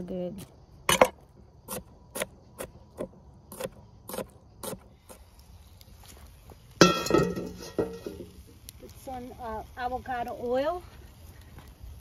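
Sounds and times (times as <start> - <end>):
metal pan clanking on grill grate: 6.8 - 8.4.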